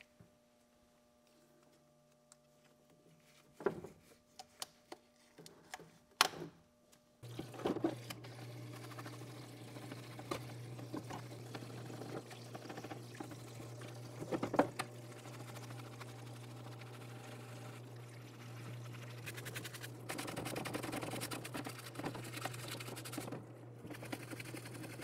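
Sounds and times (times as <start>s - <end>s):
parts washer pump humming: 7.2s - 25.0s
stiff brush scrubbing: 15.1s - 25.0s.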